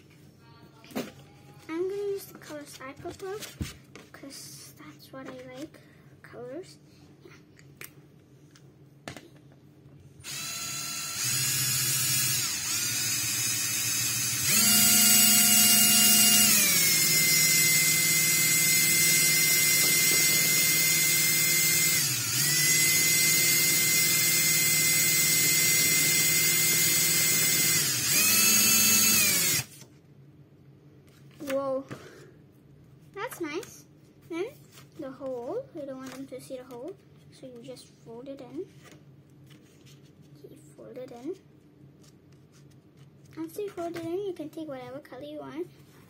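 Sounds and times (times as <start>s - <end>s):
cordless drill motor whining: 10.2s - 29.8s.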